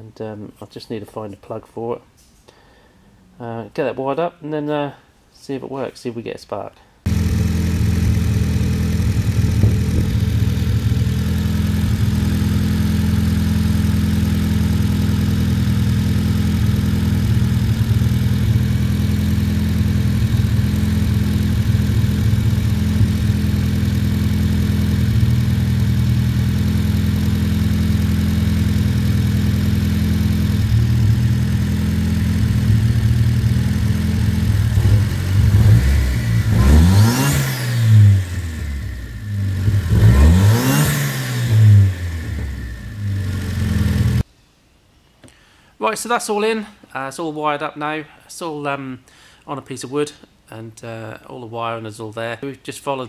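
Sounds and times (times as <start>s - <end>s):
car engine idling: 7.1s - 44.2s
engine revving from throttle blips: 7.1s - 44.2s.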